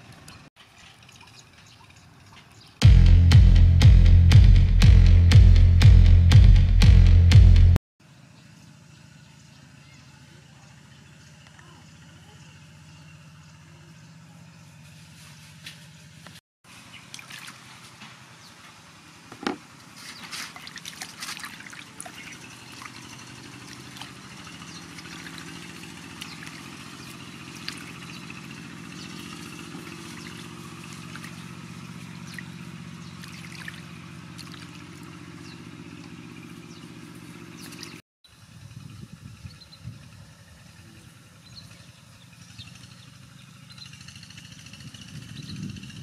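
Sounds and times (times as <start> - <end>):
water splashing and sloshing: 0.0 - 2.8, 16.7 - 18.4, 19.4 - 38.0
steady low hum: 2.8 - 7.8.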